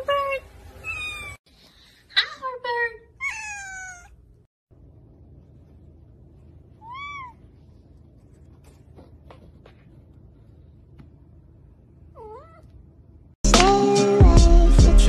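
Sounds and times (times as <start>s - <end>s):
cat meowing: 0.8s - 1.4s, 3.2s - 4.2s, 6.8s - 7.4s, 12.2s - 12.7s.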